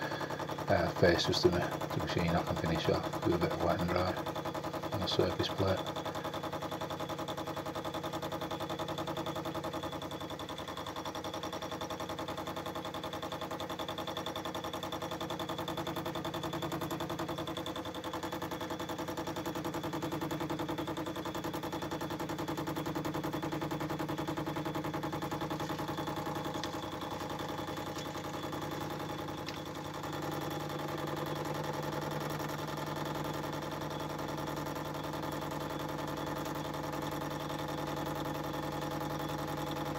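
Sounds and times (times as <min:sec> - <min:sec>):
metal lathe running: 0:00.0 - 0:39.9.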